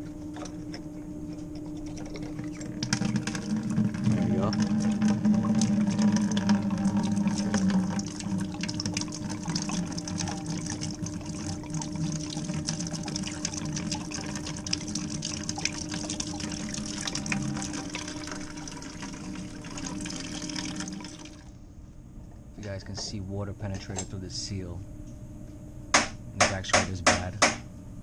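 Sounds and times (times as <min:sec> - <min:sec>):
steady low hum: 0:00.0 - 0:28.0
water pouring into plastic bucket: 0:01.9 - 0:21.5.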